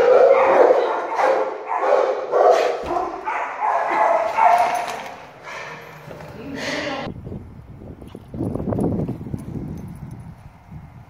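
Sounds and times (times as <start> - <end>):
dog barking: 0.0 - 5.8.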